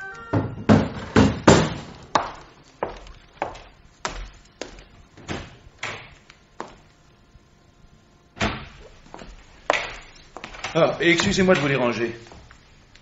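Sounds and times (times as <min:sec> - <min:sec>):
footsteps walking: 0:00.0 - 0:07.0, 0:08.8 - 0:12.9.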